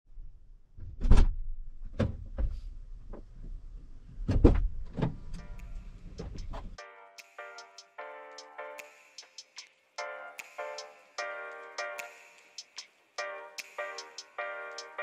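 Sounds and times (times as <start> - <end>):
music: 5.4 - 15.0.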